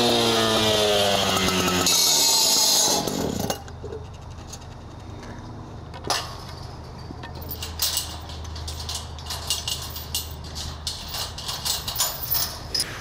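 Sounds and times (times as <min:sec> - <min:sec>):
chain clinking against metal gate: 0:06.0 - 0:13.0.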